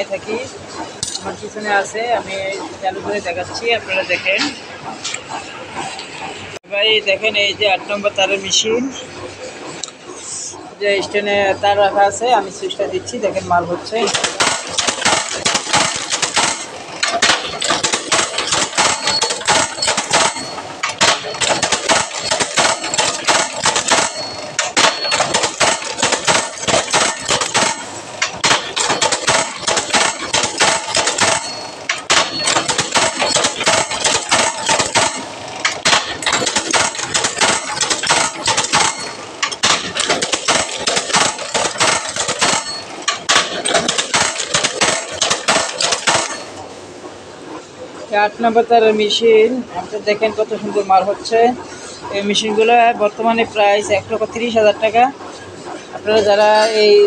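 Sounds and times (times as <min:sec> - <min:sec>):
wire bending machine clattering: 0:00.0 - 0:06.6, 0:13.9 - 0:46.7.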